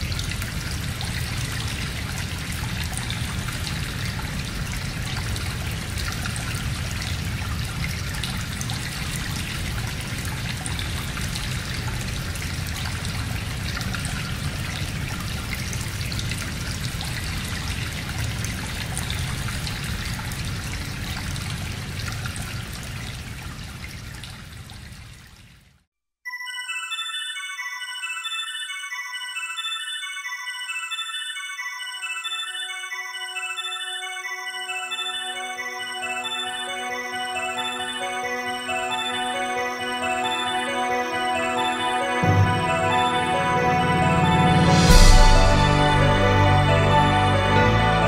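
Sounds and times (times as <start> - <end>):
trickling rushing water: 0.0 - 25.7
bright bell-like notes: 26.3 - 48.0.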